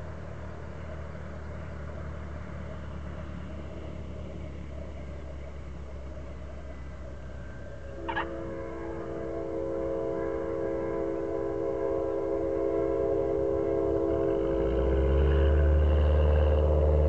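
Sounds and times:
propeller plane engine: 0:00.0 - 0:09.3.

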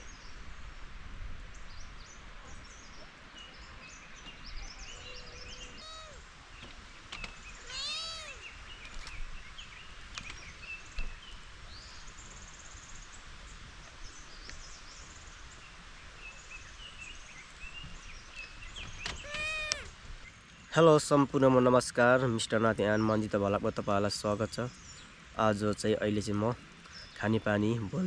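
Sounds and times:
faint bird chirps: 0:01.5 - 0:13.2, 0:13.9 - 0:21.5
cat meowing: 0:05.1 - 0:06.2, 0:07.6 - 0:08.5, 0:19.2 - 0:19.9.

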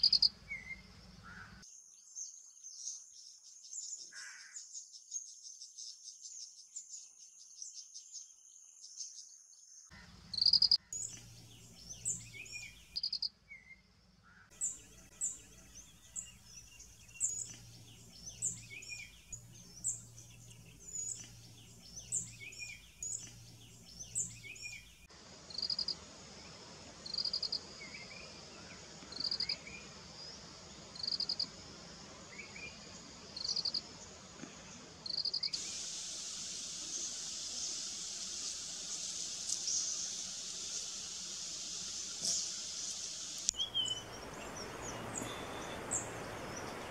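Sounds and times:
insect pulsed chirps: 0:00.0 - 0:00.4, 0:10.3 - 0:13.3, 0:14.6 - 0:26.0, 0:27.0 - 0:28.4, 0:29.1 - 0:31.7, 0:32.3 - 0:33.9, 0:35.0 - 0:46.9
bird chirps: 0:00.0 - 0:01.6, 0:10.3 - 0:26.0, 0:39.4 - 0:46.9
high insect buzz: 0:25.5 - 0:27.7, 0:35.0 - 0:46.9.

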